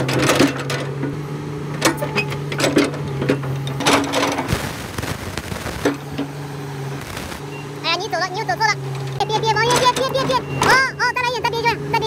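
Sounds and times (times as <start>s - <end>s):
excavator tracks clanking: 0.0s - 4.5s, 8.9s - 11.4s
diesel engine humming: 0.0s - 12.0s.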